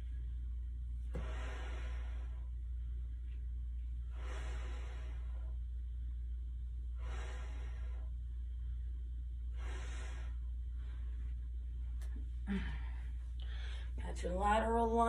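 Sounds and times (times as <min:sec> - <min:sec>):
steady low hum: 0:00.0 - 0:15.0
woman exhaling breathily: 0:12.4 - 0:13.8.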